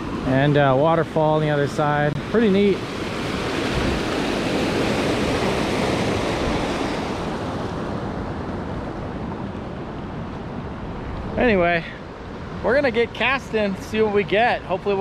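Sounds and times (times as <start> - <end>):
creek water rushing over rocks: 0.0 - 7.4.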